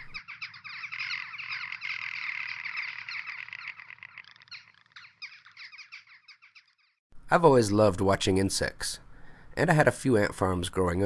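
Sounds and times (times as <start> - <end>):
high-pitched trilling animal calls: 0.0 - 7.0.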